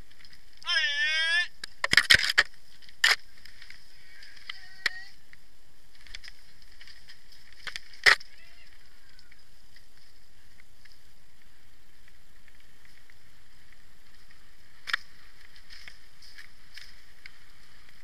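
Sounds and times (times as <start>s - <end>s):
rush of bike tyres and air: 2.5s - 18.0s
bike knocking over trail: 5.9s - 18.0s.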